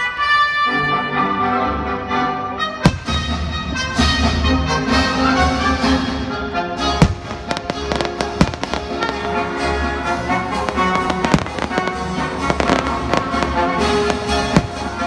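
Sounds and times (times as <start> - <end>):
loud music: 0.7 - 15.0
fireworks bursting: 2.9 - 3.4, 6.9 - 9.9, 10.5 - 15.0.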